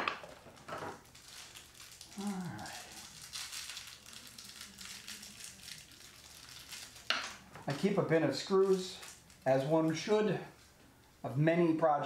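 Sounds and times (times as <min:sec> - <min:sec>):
low falling voice: 0:02.2 - 0:03.0.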